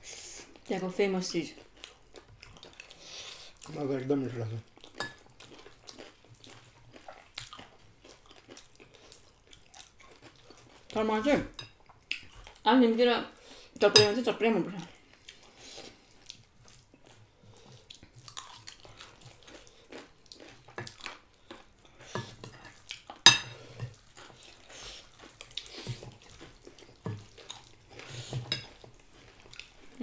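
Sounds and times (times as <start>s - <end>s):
chewing and wet mouth noises: 1.5s - 11.0s, 11.7s - 12.7s, 14.7s - 30.0s
utensils clinking on dishes: 22.2s - 23.9s.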